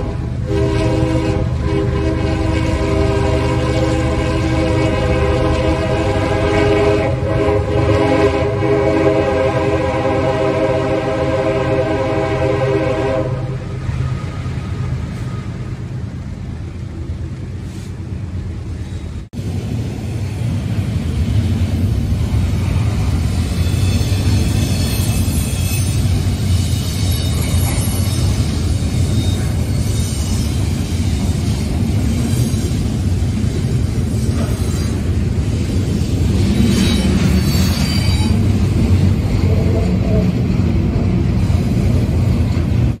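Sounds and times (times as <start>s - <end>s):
diesel locomotive running: 0.0s - 43.0s
freight train rolling past: 0.0s - 43.0s.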